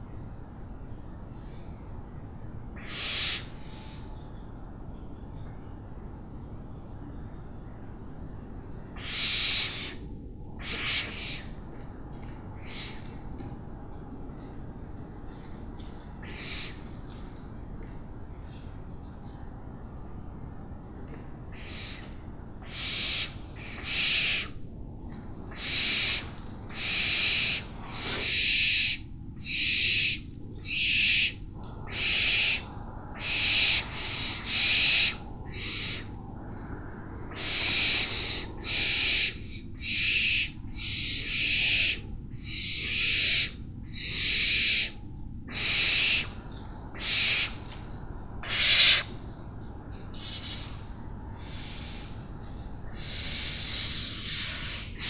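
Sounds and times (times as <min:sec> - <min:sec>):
owl screeching: 0:02.8 - 0:04.0, 0:09.0 - 0:11.6, 0:12.6 - 0:13.1, 0:16.2 - 0:16.9, 0:21.5 - 0:24.6, 0:25.5 - 0:36.1, 0:37.3 - 0:47.6, 0:48.4 - 0:49.1, 0:50.2 - 0:50.8, 0:51.4 - 0:52.2, 0:52.9 - 0:55.0.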